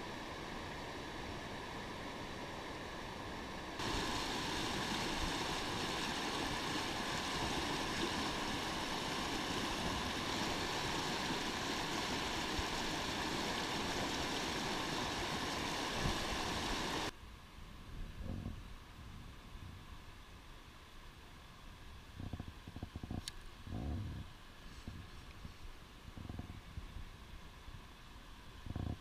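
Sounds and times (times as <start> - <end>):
creek water rushing over rocks: 0.0 - 17.1.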